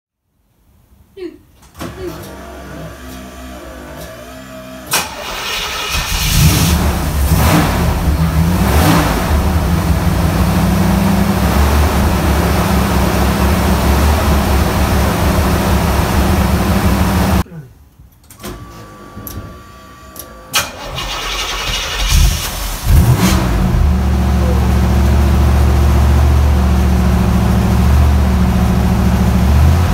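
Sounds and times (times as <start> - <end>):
car engine starting and revving: 1.8 - 17.4, 20.6 - 29.9
car engine idling: 2.4 - 17.4, 20.8 - 29.9.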